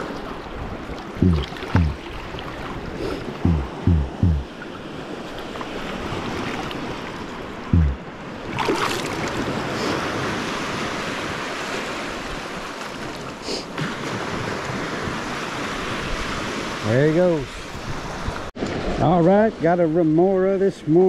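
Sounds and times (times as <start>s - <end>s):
surf sloshing around legs: 0.0s - 16.6s
low thump: 1.2s - 2.0s, 3.4s - 4.4s, 7.8s - 8.0s
water splash: 1.2s - 2.7s, 7.8s - 9.5s.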